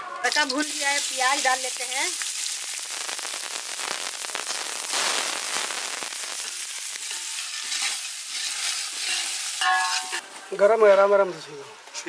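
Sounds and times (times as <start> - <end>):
onions sizzling in oil: 0.2 - 10.4
ladle stirring in pot: 6.4 - 10.2.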